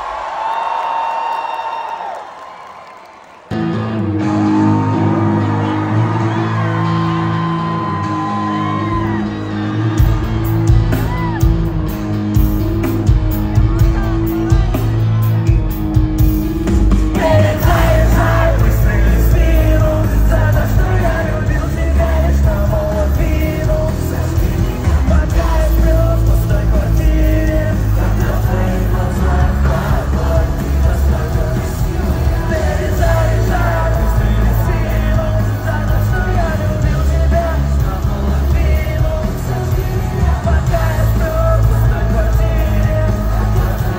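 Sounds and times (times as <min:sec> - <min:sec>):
live rock band playing: 0:03.5 - 0:43.9
person singing: 0:17.1 - 0:43.9.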